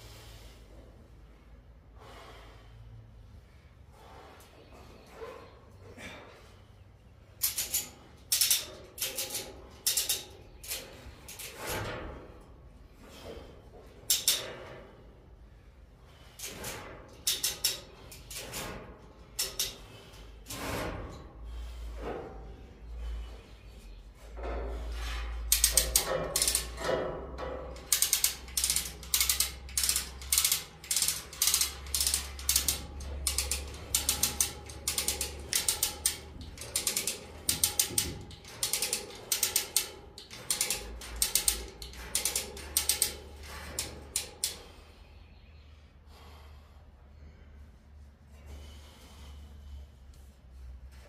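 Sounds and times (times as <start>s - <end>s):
chain hoist ratcheting: 7.4s - 12.2s, 14.0s - 14.7s, 16.4s - 20.9s, 25.4s - 44.8s.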